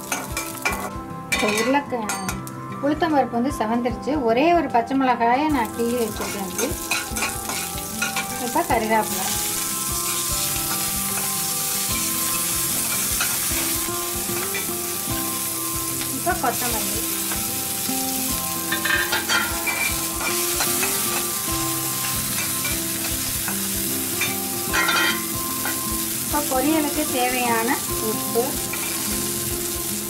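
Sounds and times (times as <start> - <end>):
spices sizzling in oil: 0.0 - 2.6, 5.4 - 30.0
metal ladle scraping a pan: 24.2 - 25.8.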